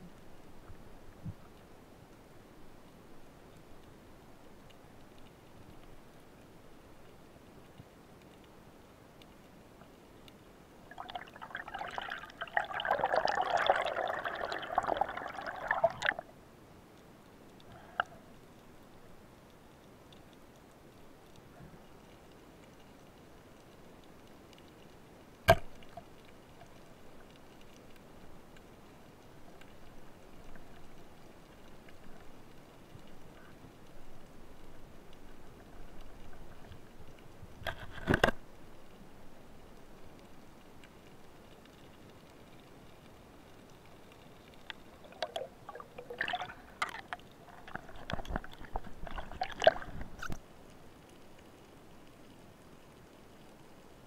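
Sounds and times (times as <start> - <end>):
faint underwater ticks and crackle: 0.0 - 54.0
underwater clicks and knocks: 25.4 - 26.1, 37.6 - 38.4, 44.6 - 50.4
speargun firing underwater: 25.5 - 25.8.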